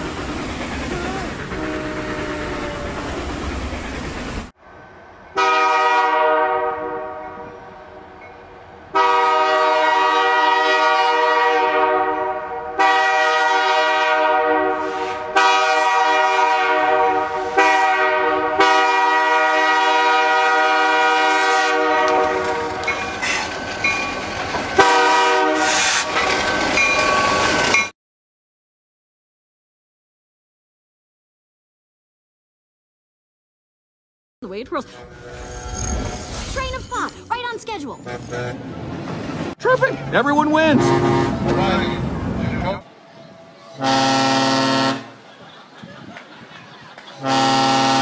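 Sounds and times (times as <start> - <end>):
train air horn blasts: 1.4 - 2.9, 5.4 - 8.1, 8.9 - 23.5, 24.8 - 26.1, 34.8 - 36.2, 38.0 - 38.6, 40.6 - 42.0, 43.7 - 45.2, 47.2 - 48.0.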